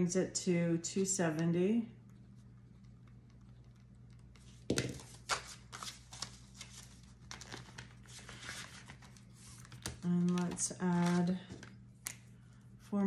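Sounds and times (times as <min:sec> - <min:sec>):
banknotes and plastic pouch rustling: 0:04.4 - 0:11.8.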